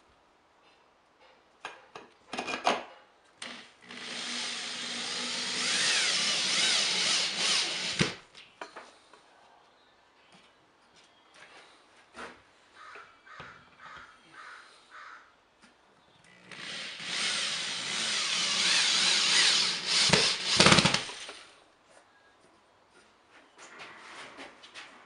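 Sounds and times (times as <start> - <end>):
cordless drill driving a screw: 3.4 - 8.2, 16.3 - 21.4.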